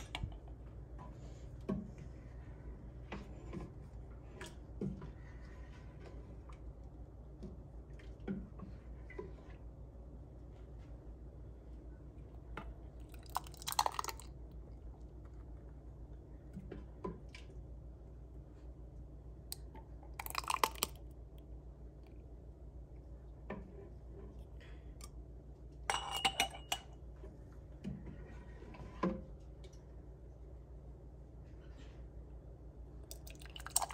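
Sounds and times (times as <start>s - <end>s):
ladle and jars clinking: 25.9s - 26.9s.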